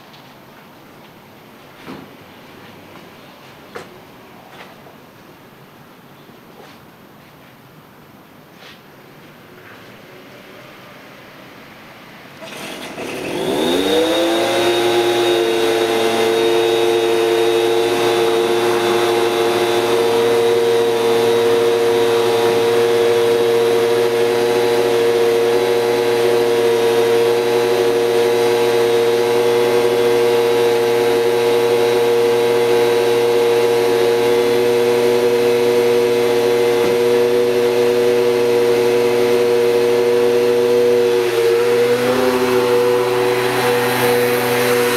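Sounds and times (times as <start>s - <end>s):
two-stroke engine whine: 12.4s - 44.9s.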